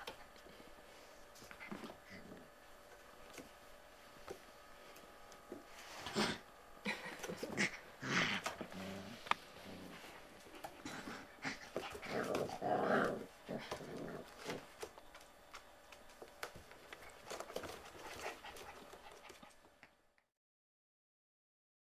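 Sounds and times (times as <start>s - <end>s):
puppies growling and whimpering: 5.9s - 14.9s
paws tapping on wooden floor: 13.4s - 19.9s.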